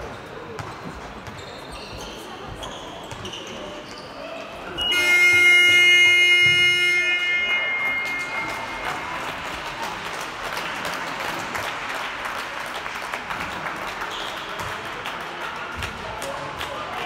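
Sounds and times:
spectators applauding: 7.8s - 17.0s.

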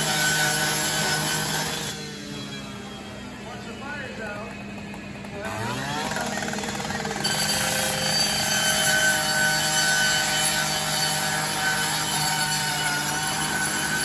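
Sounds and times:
saw cutting metal: 0.0s - 3.4s, 5.4s - 14.0s
power saw motor hum: 5.4s - 14.0s.

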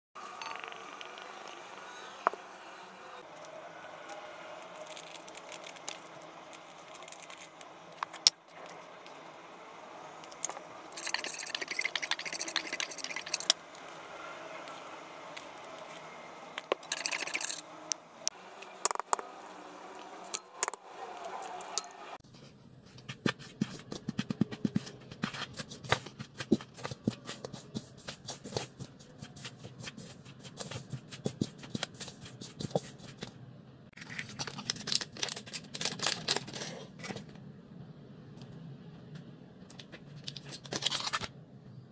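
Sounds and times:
spoon scraping metal bowl: 10.2s - 13.9s, 16.6s - 17.6s
packet rustling: 34.0s - 37.3s.

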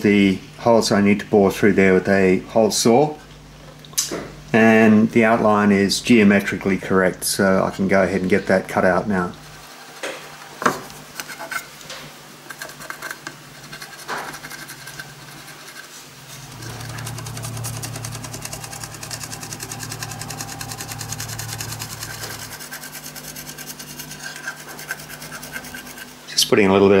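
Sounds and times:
steady low hum: 0.0s - 27.0s
crayon scratching on sheet: 12.5s - 26.2s.

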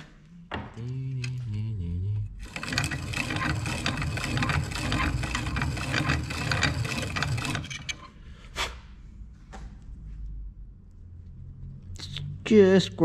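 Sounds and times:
file scraping metal ring: 2.4s - 8.2s.

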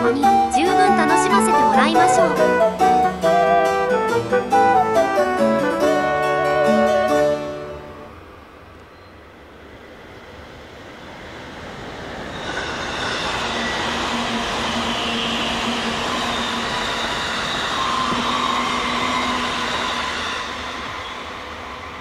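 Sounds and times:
electric train passing at speed: 0.0s - 22.0s.

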